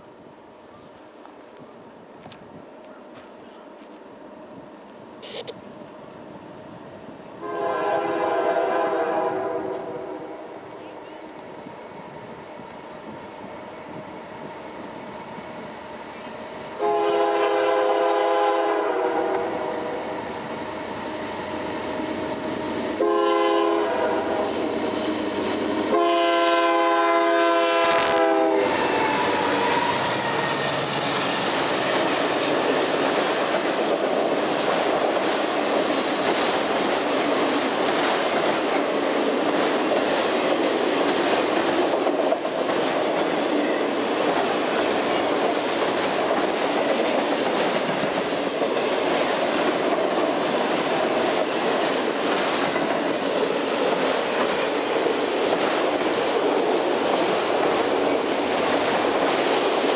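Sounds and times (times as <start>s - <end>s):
rail cars rumbling past: 5.6s - 59.9s
locomotive horn blasts: 7.4s - 10.9s, 16.8s - 20.1s, 23.0s - 24.7s, 25.8s - 30.6s
train wheel clicks: 27.8s - 59.9s.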